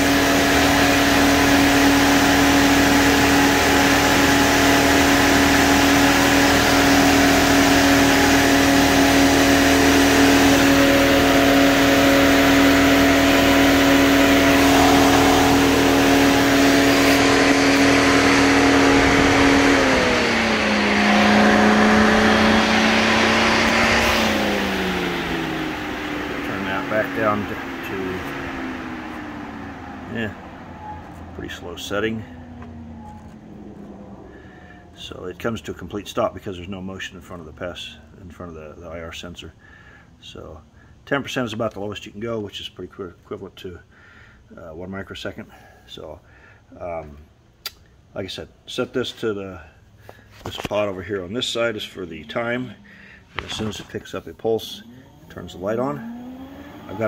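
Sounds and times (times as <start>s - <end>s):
electric cooling fan humming: 0.0s - 36.0s, 49.5s - 57.0s.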